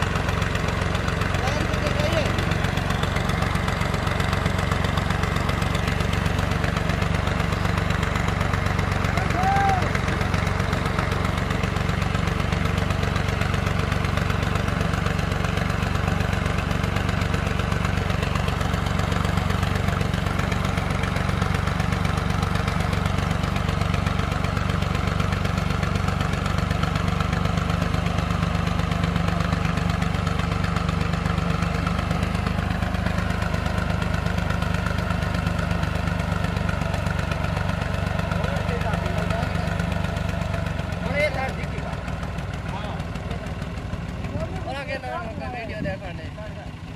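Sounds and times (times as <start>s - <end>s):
diesel tractor engine running: 0.0s - 46.9s.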